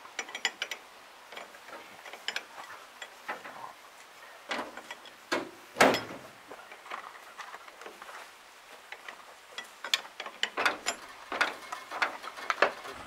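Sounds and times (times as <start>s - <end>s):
metal knocks: 4.5s - 6.3s, 9.9s - 13.0s.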